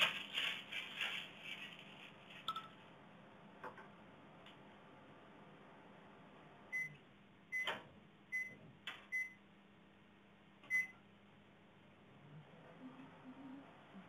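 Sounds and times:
appliance keypad beeps: 6.7 - 9.4, 10.7 - 11.0.

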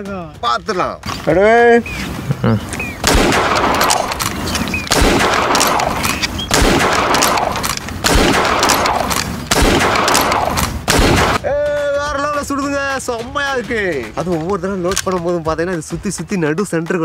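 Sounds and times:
dart blaster firing bangs: 4.9 - 11.4.

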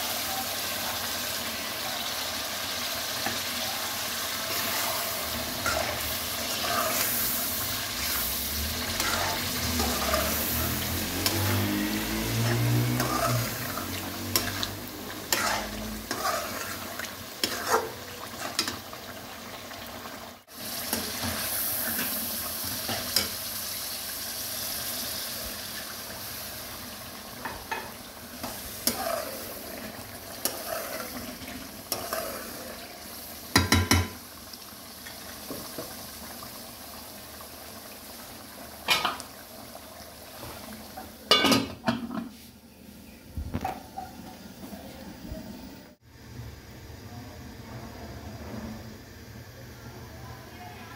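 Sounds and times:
food sizzling in a pan: 0.0 - 50.9
ladle stirring and scraping: 4.5 - 18.9, 27.4 - 32.8.

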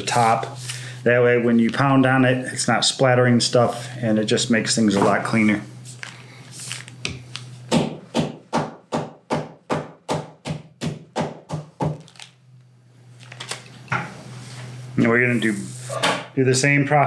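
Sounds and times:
meat mallet pounding steak: 7.7 - 12.0.

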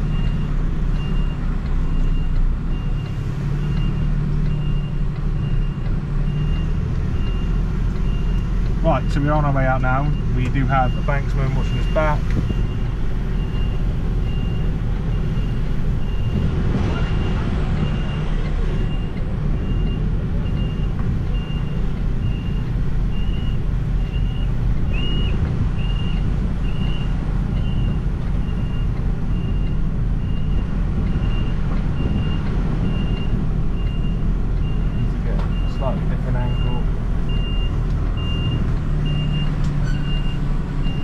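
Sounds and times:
diesel engine rumble: 0.0 - 41.0
reversing alarm beeping: 9.6 - 41.0.

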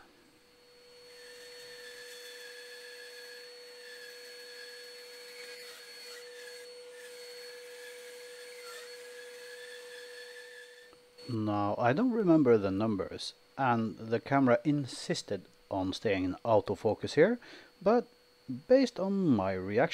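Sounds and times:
bandsaw cutting wood: 0.7 - 12.4.

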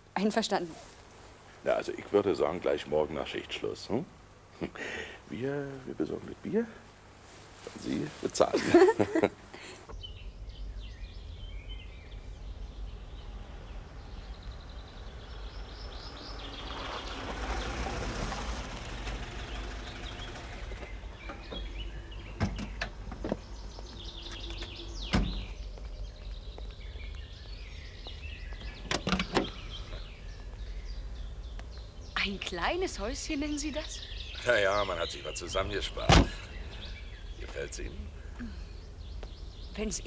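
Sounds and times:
birds chirping: 0.0 - 40.0
car driving up and stopping: 9.9 - 26.2
car doors knocking shut: 20.1 - 25.6, 36.0 - 36.4.

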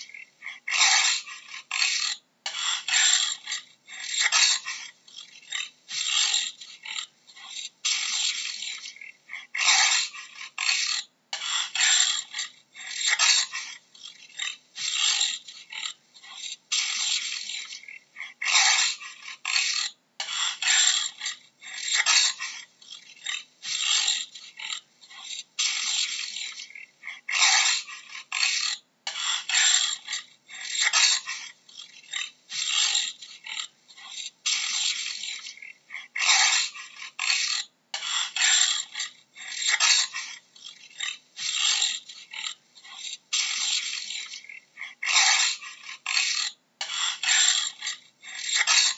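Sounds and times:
jaguar rasping grunts: 0.0 - 48.9.

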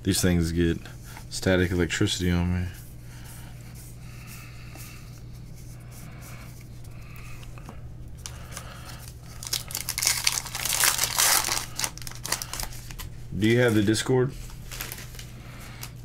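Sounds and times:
steady low hum: 0.0 - 16.0
card pack wrappers crinkling: 8.2 - 13.1, 14.5 - 16.0.

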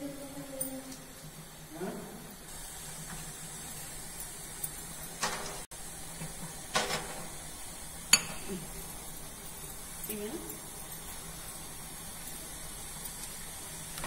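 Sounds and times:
steady high hiss: 0.0 - 14.0
glassware clinking on steel: 8.1 - 8.5.

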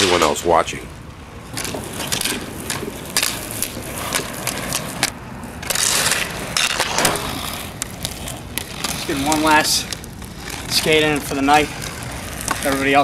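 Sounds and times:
skate wheels rolling on asphalt: 0.0 - 13.0
hockey stick clicking ball: 11.9 - 12.8.

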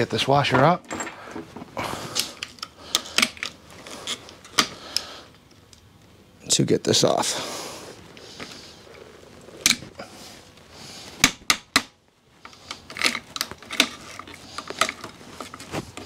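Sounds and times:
hand tools clicking on metal: 2.1 - 5.8, 12.5 - 16.0.

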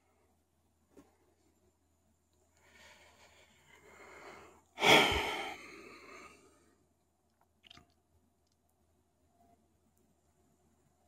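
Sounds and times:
person exhaling: 2.7 - 6.5.

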